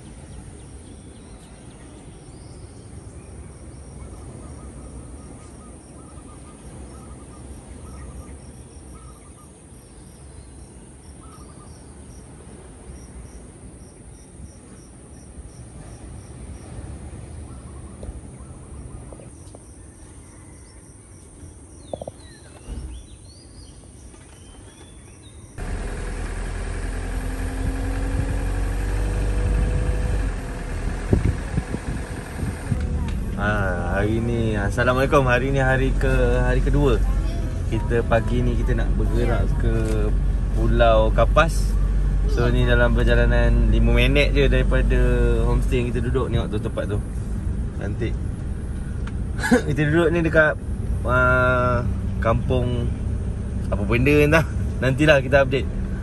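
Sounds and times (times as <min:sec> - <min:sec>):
insects chirping: 0:00.0 - 0:56.0
car engine and road noise: 0:21.6 - 0:56.0
low steady rumble: 0:25.6 - 0:56.0.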